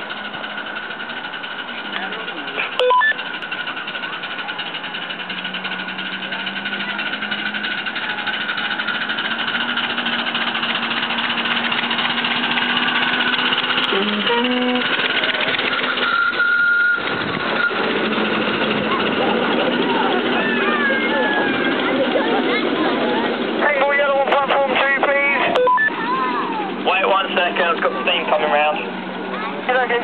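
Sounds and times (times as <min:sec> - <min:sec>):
miniature steam locomotive running: 0:00.0 - 0:30.0
short beep: 0:02.8 - 0:03.2, 0:16.0 - 0:17.0, 0:25.6 - 0:25.9.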